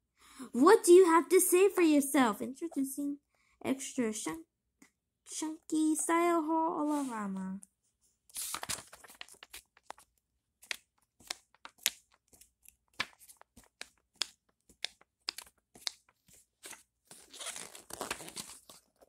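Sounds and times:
paper pages rustling: 8.3s - 19.0s.

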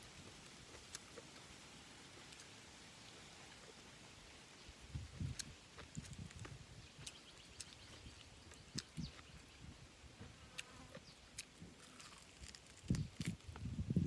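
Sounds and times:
person chewing: 0.0s - 1.5s, 2.1s - 2.5s, 4.9s - 9.6s, 10.5s - 13.6s
meat being pulled apart: 11.4s - 13.5s.

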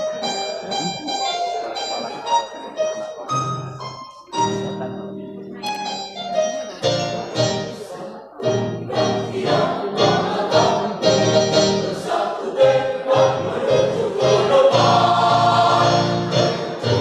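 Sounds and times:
mixed choir singing: 8.6s - 17.0s.

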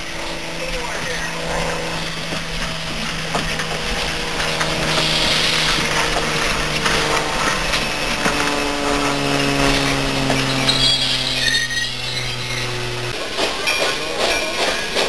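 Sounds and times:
steam locomotive passing: 0.0s - 15.0s
running gear clanks and clicks: 0.2s - 15.0s
steam hiss: 1.8s - 6.4s.

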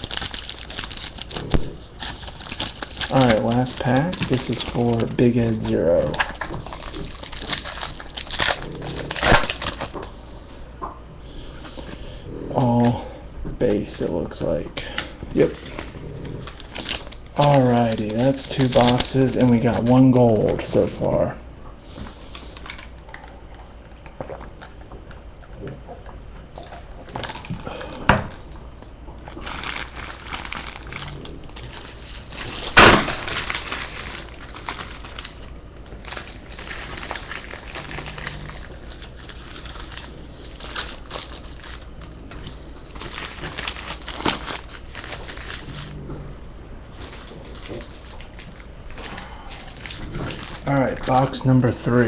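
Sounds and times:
cards and boxes rustling: 0.0s - 10.0s, 15.4s - 21.1s, 36.0s - 45.9s, 46.9s - 52.0s.

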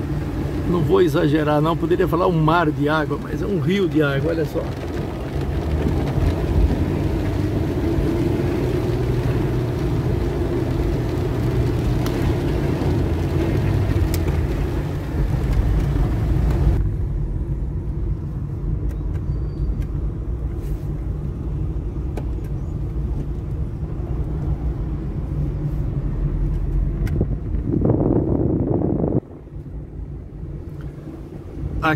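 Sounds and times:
rain and tyres hissing: 0.0s - 17.4s, 28.6s - 31.9s
car engine and road rumble: 0.0s - 31.9s.

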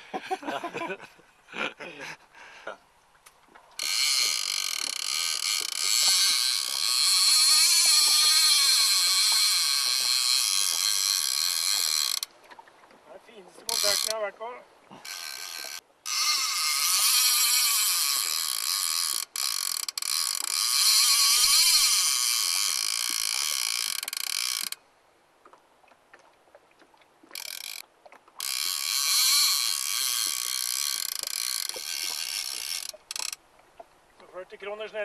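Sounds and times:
fishing reel drag clicking: 3.8s - 12.3s, 13.6s - 14.3s, 15.0s - 24.8s, 27.3s - 27.8s, 28.4s - 33.4s.

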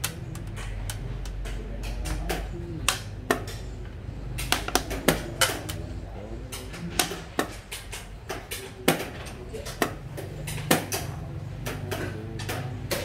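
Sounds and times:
game pieces clacking on wooden board: 0.0s - 3.7s, 4.4s - 5.8s.

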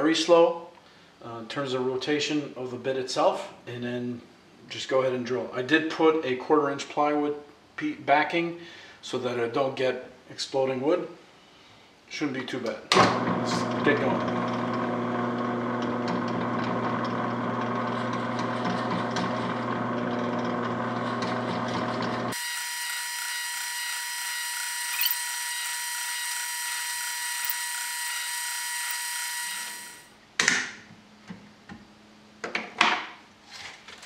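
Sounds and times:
drill press boring wood: 13.1s - 30.1s.

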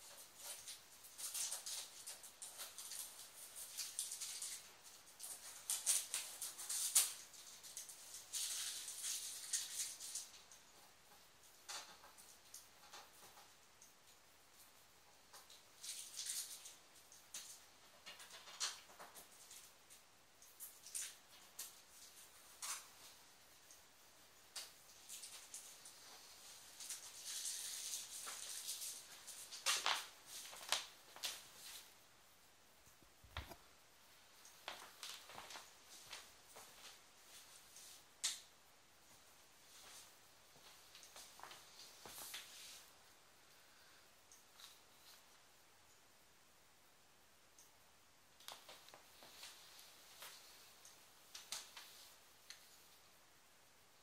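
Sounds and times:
hands scraping and rustling tv: 0.0s - 32.0s, 39.2s - 43.0s, 48.4s - 53.0s
rustling and scuffing of tv: 24.6s - 32.0s, 34.4s - 38.1s, 39.2s - 43.0s, 48.4s - 52.9s.

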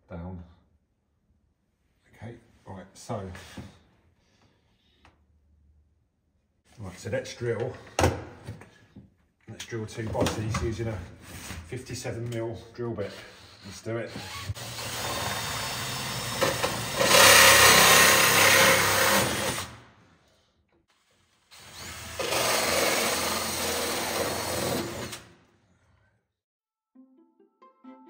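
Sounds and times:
drill hole saw cutting plastic pipe: 13.2s - 19.7s, 21.5s - 25.2s.

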